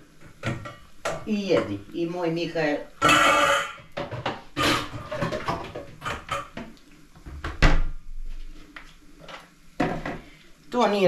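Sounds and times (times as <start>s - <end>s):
cookware and utensils clattering: 0.2s - 1.8s, 3.0s - 6.7s.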